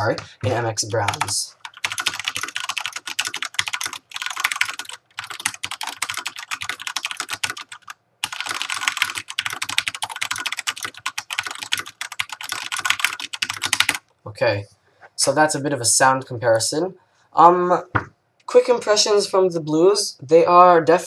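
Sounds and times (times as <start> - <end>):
mechanical keyboard typing: 0.0 - 14.0.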